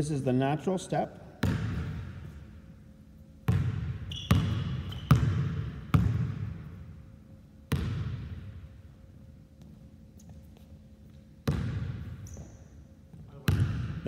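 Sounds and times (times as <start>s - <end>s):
basketball bouncing on gym floor: 1.4s - 2.6s, 3.4s - 7.0s, 7.6s - 8.7s, 9.6s - 14.0s.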